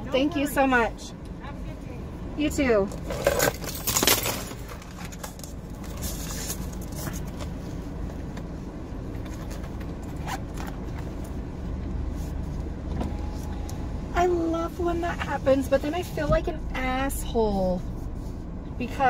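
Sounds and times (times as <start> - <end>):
car engine hum inside cabin: 0.0 - 19.0
rustles and scrapes of handling: 2.9 - 13.7, 15.2 - 19.0.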